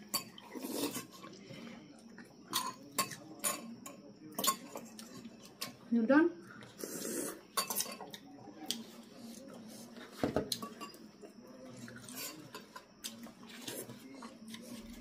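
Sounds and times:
cutlery clinking on ceramic bowls: 2.5 - 5.8, 7.6 - 8.2, 10.2 - 11.1, 12.0 - 12.9.

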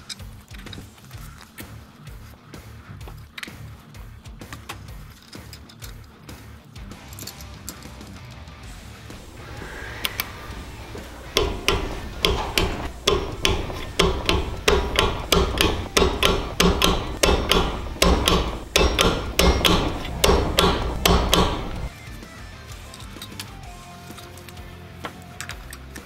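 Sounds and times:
ringing hammer blows: 9.0 - 21.9.

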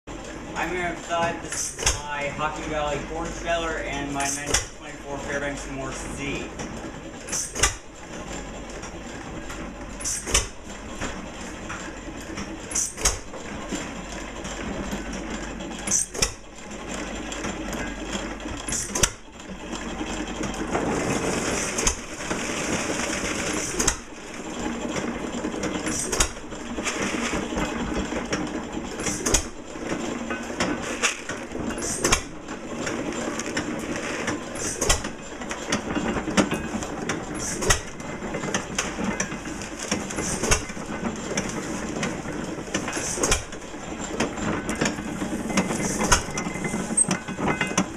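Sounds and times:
corn sheller rattling clatter: 0.1 - 47.9
engine firing with sharp bangs: 4.2 - 4.9, 7.2 - 8.8, 9.4 - 13.5, 15.8 - 16.6, 17.4 - 33.0, 34.5 - 41.0, 42.2 - 45.0.

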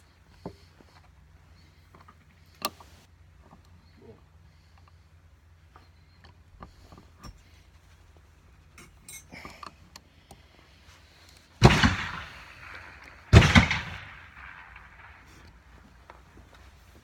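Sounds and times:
gunshots with echo: 11.6 - 15.4.

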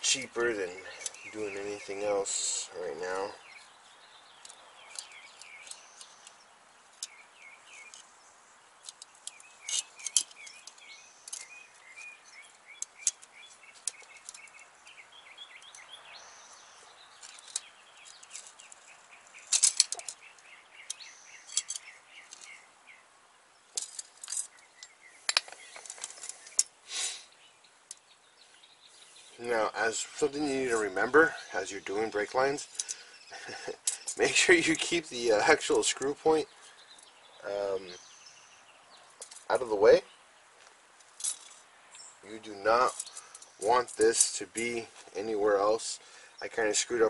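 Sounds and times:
small birds chirping: 0.0 - 47.0.

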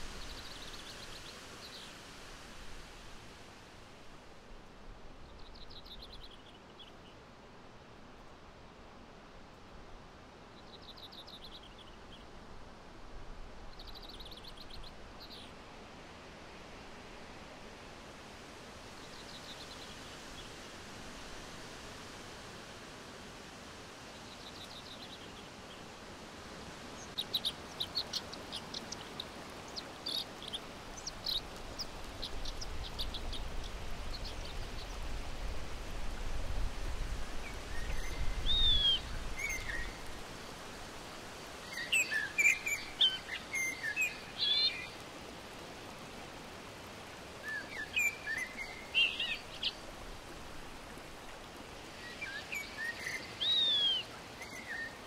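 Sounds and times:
small birds chirping: 5.3 - 7.2, 10.6 - 12.3, 24.3 - 25.9, 26.8 - 35.2, 37.4 - 40.1, 41.6 - 45.0, 47.4 - 50.0, 51.8 - 55.0
river water rushing: 11.8 - 55.0.

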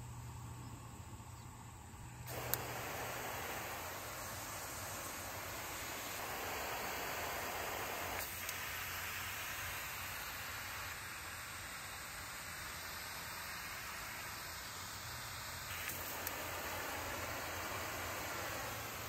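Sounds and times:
nozzle clicks: 2.3 - 4.5, 5.7 - 8.7, 15.7 - 16.8
hose nozzle spraying water: 2.3 - 19.0.

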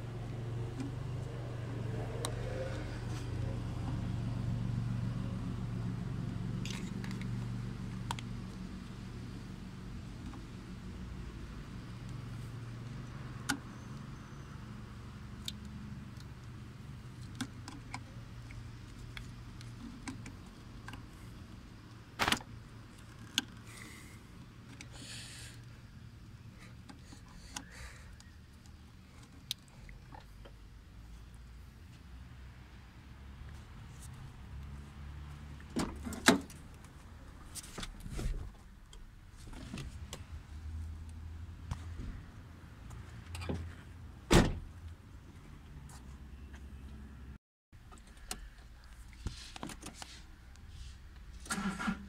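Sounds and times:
car door knocks and rustle: 44.3 - 44.7.

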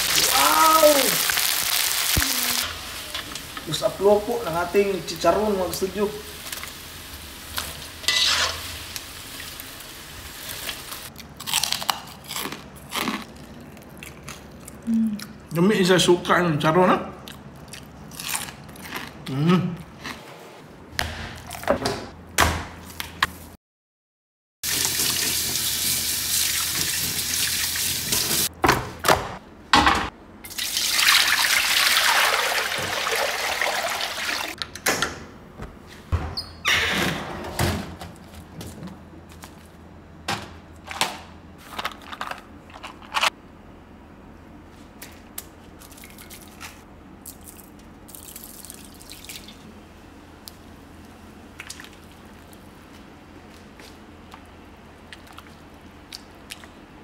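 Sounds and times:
water running from a tap: 24.6 - 28.5, 30.5 - 34.6
refrigerator door: 34.7 - 38.7.

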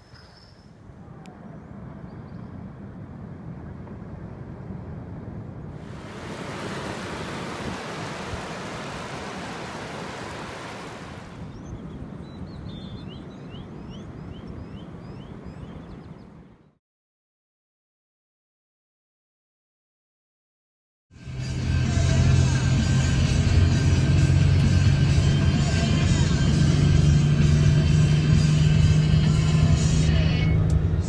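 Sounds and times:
wind rumbling on microphone: 0.0 - 16.8
ocean waves washing on beach: 5.7 - 12.2.

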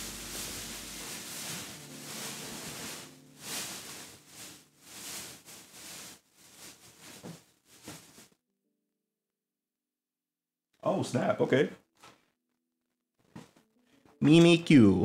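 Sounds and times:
rustling and handling noise: 0.0 - 8.4.

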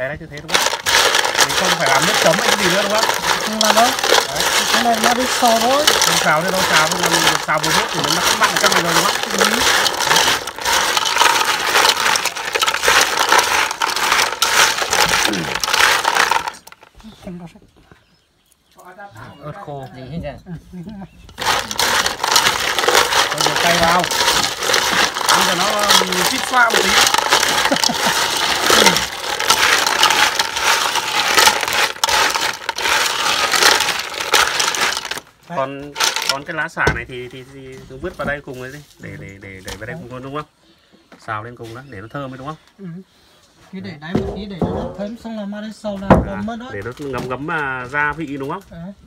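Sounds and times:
snail shells rattling in metal pot: 0.3 - 17.0, 21.3 - 37.4.

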